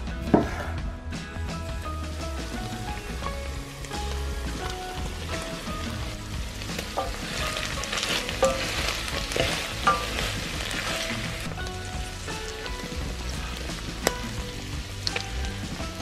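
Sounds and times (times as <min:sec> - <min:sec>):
food sizzling in a pot: 0:00.3 - 0:16.0
wooden spoon stirring: 0:03.9 - 0:15.7.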